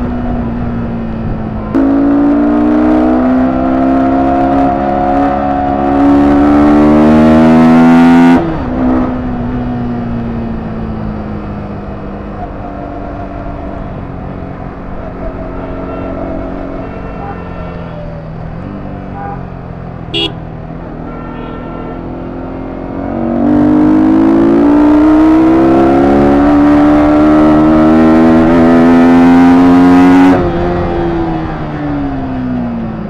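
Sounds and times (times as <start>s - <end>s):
motorcycle engine accelerating: 0.0s - 15.6s, 19.8s - 20.9s, 22.1s - 33.0s
horn beep: 15.5s - 18.3s, 20.1s - 20.4s.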